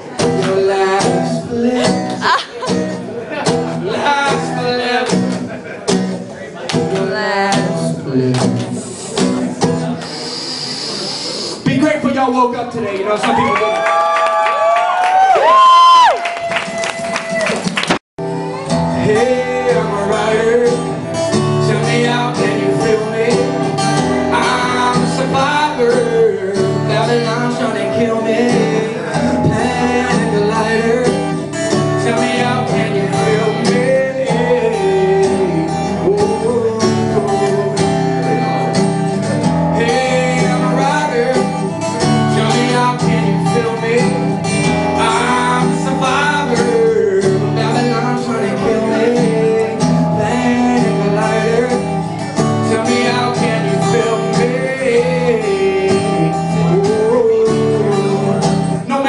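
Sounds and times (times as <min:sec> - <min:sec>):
strummed guitar chords: 0:00.0 - 0:12.5, 0:18.2 - 0:59.0
woman singing: 0:07.0 - 0:08.0.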